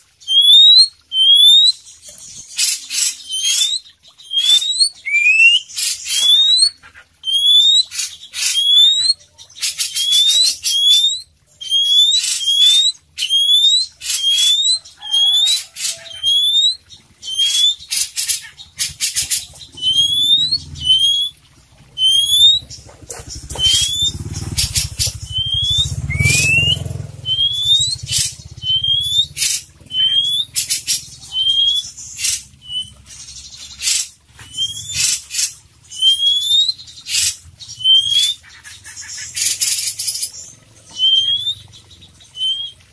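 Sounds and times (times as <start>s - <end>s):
bird singing whistles: 0.2s - 1.8s, 2.6s - 17.9s, 19.1s - 21.4s, 22.0s - 22.7s, 23.4s - 30.7s, 31.3s - 32.0s, 32.6s - 33.0s, 33.8s - 35.2s, 35.9s - 38.4s, 40.9s - 41.6s, 42.4s - 42.8s.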